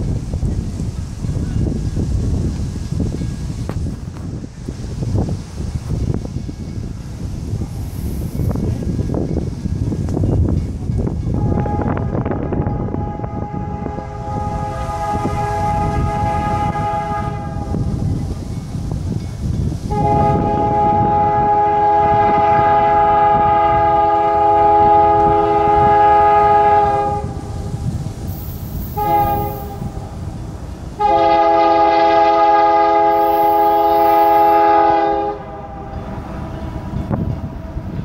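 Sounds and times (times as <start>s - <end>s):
train air horn blasts: 11.3s - 18.4s, 19.8s - 30.4s, 31.0s - 38.0s.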